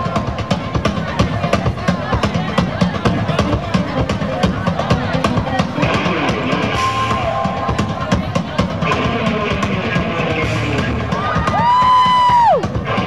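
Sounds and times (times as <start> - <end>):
drum kit beat: 0.0 - 13.0
blues band playing: 3.1 - 13.0
electric guitar lead line: 3.4 - 10.7.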